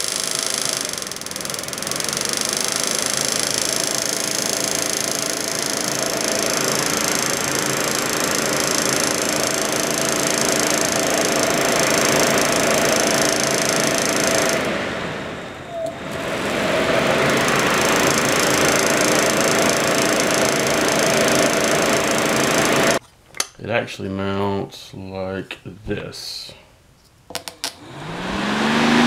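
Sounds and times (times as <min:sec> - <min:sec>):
fan motor click: 0:00.0 - 0:14.8, 0:17.1 - 0:23.0
electric fan whirring: 0:00.0 - 0:23.0, 0:27.4 - 0:29.0.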